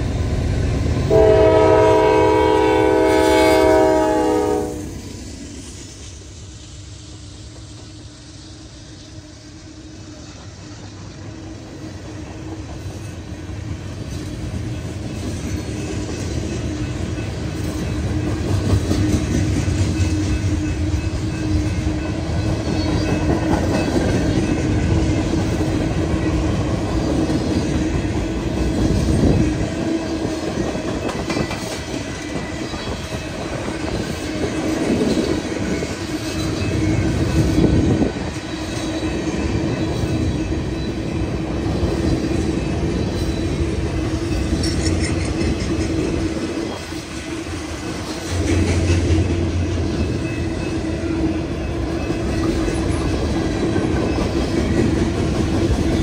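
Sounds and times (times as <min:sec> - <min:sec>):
train wheels clacking on rails: 0:00.0 - 0:56.0
locomotive air horn: 0:01.1 - 0:05.0.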